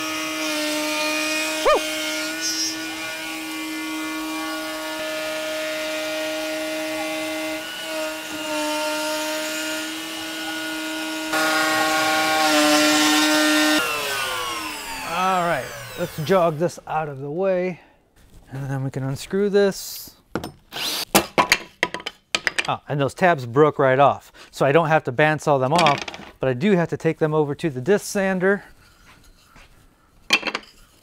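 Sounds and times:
hiss of wood cutting: 0:00.0 - 0:16.8
router spindle whining: 0:00.0 - 0:16.8.

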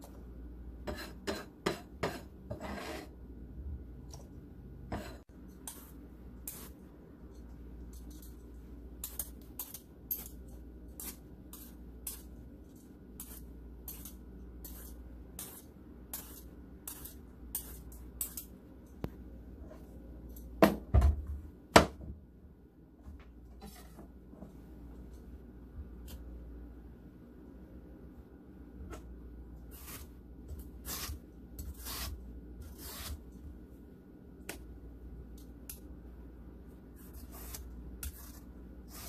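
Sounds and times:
peeler scraping zucchini: 0:29.7 - 0:33.2, 0:37.0 - 0:39.0.

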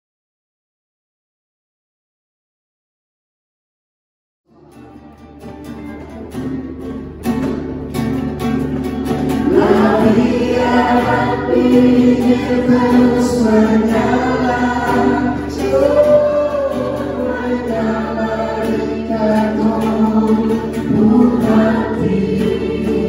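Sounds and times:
group singing: 0:09.0 - 0:23.0.

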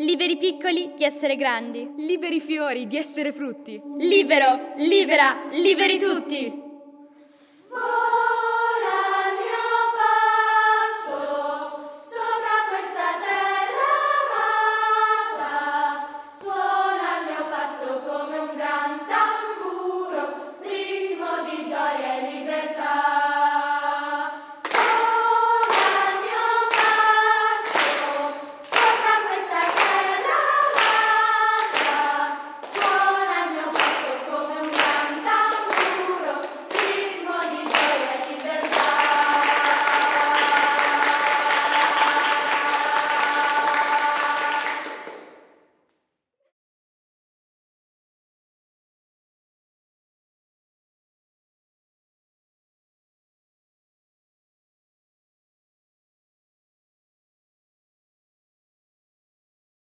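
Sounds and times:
children's choir singing: 0:00.0 - 0:45.6
people clapping a steady beat: 0:24.6 - 0:45.6.

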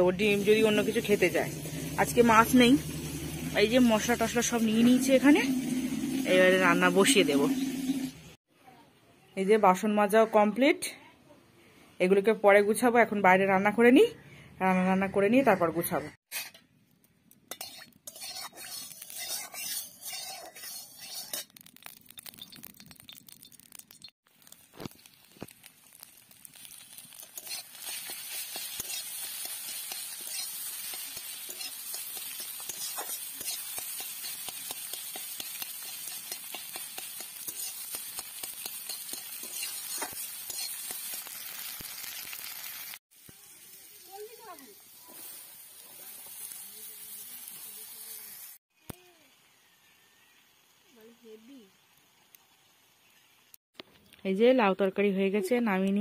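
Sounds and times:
food sizzling in hot oil: 0:00.0 - 0:08.4, 0:17.5 - 0:53.6
metal spatula scraping pan: 0:16.3 - 0:16.6, 0:17.5 - 0:21.5, 0:27.2 - 0:41.2.

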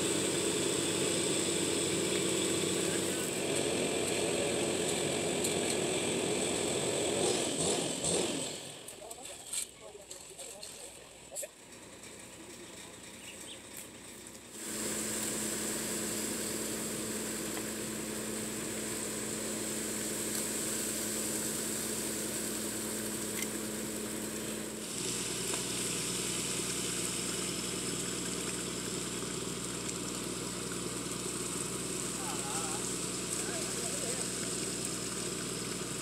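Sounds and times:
diesel engine running: 0:00.0 - 0:36.0
concrete pouring down chute: 0:14.6 - 0:36.0.

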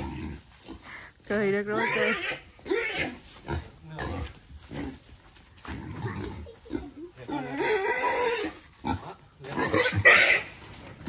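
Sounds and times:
wild boar squealing: 0:01.7 - 0:03.3, 0:05.8 - 0:10.8.

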